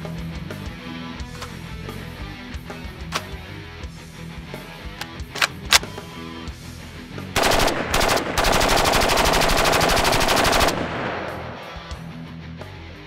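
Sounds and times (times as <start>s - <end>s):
rifle firing bursts: 5.0s - 6.0s, 7.4s - 12.0s
gunshot echo: 10.7s - 12.1s.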